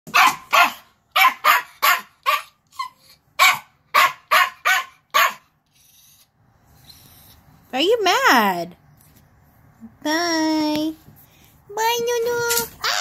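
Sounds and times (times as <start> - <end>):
small dog barking: 0.1 - 2.6, 3.4 - 5.5.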